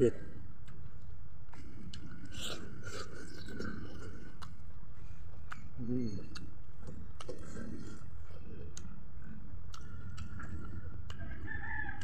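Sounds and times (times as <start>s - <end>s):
low background noise: 0.0s - 12.0s
man chewing food: 0.3s - 12.0s
lip smacks and tongue clicks: 0.6s - 4.8s, 5.4s - 7.8s, 8.6s - 9.0s, 9.6s - 12.0s.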